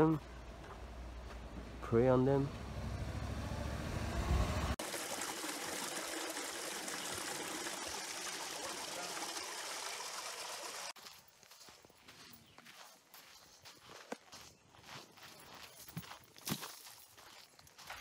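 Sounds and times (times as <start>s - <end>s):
waterfall splashing water: 4.8s - 11.0s.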